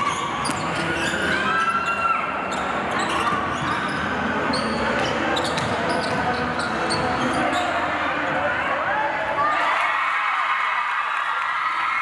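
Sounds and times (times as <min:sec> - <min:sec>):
sneakers squeaking on floor: 0:00.0 - 0:08.0
murmur of voices: 0:00.0 - 0:11.2.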